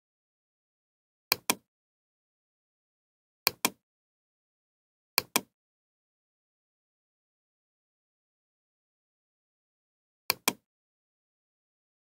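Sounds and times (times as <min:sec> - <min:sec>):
computer mouse double clicks: 0:05.2 - 0:05.5, 0:10.3 - 0:10.6.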